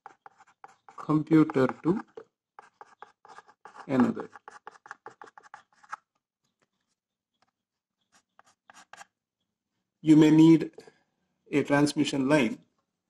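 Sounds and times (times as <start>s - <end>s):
chalk scratching on a blackboard: 0.0s - 6.0s, 8.0s - 9.1s.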